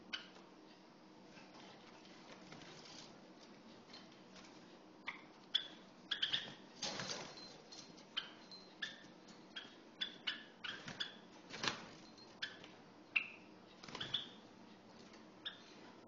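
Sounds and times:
soft rustles: 1.2 - 4.8.

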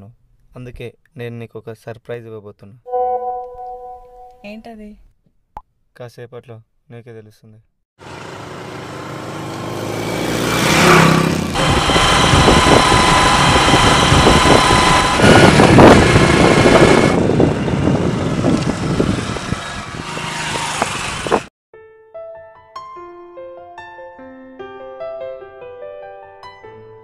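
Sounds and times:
soft piano music: 2.9 - 4.4, 21.8 - 27.0
motorcycle engine running: 8.0 - 21.5
road noise: 8.0 - 21.5.

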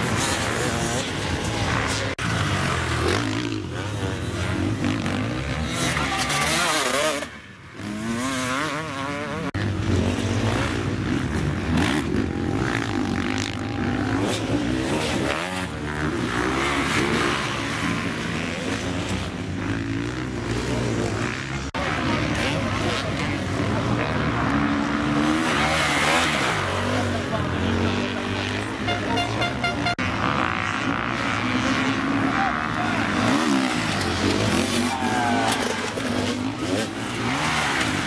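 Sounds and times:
dirt bike engines revving: 0.0 - 38.0.

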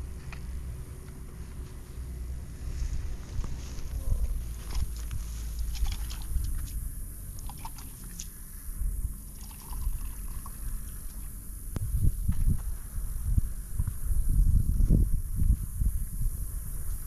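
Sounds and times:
wind rumbling on microphone: 0.0 - 17.0
water pouring into cup: 7.4 - 8.2, 9.3 - 10.9.

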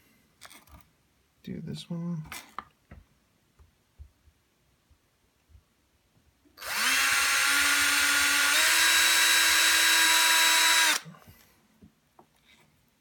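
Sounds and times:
electric screwdriver motor: 6.6 - 11.1.

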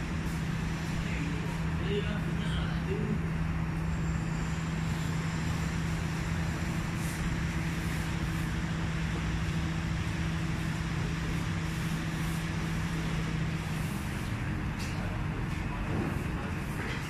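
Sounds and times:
low mechanical hum: 0.0 - 17.0
passing traffic noise: 0.0 - 17.0.

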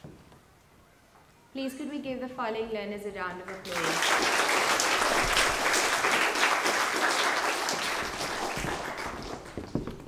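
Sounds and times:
audience applauding: 3.5 - 10.0.

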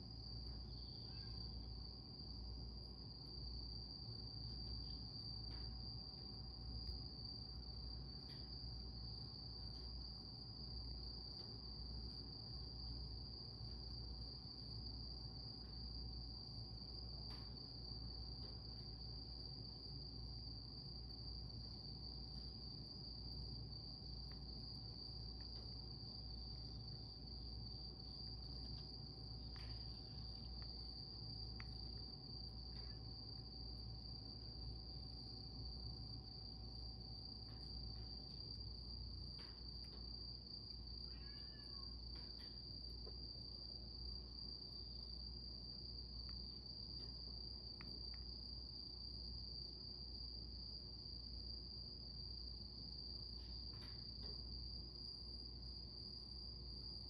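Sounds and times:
low faint hum: 0.0 - 40.8
cricket trilling: 0.0 - 57.0.

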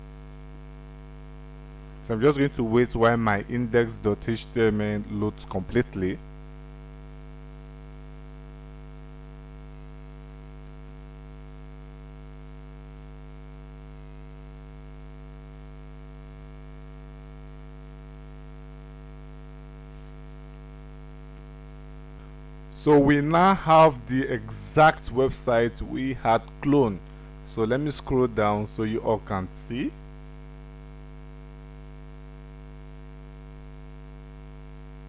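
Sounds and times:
electrical mains hum: 0.0 - 35.0.

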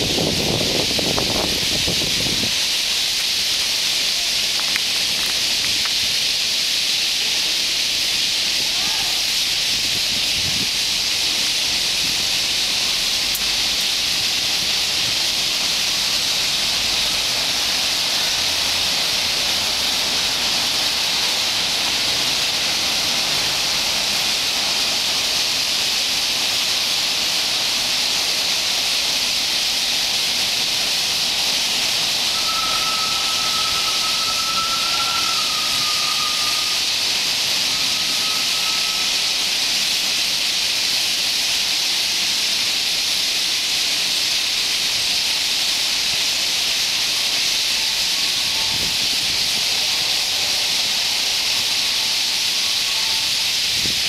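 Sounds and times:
thin steady whistling tone: 30.4 - 40.4, 47.5 - 54.0.

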